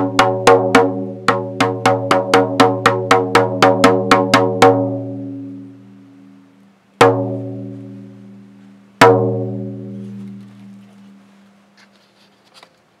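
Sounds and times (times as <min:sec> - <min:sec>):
deep pitched drum strikes: 0:00.0 - 0:05.1, 0:07.0 - 0:08.4, 0:09.0 - 0:10.0.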